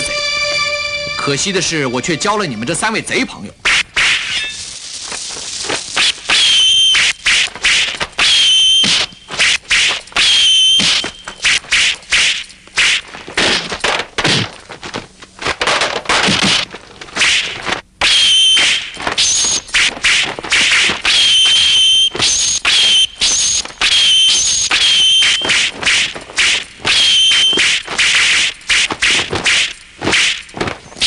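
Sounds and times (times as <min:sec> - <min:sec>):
sword swishes and hits: 0:25.4 - 0:30.7.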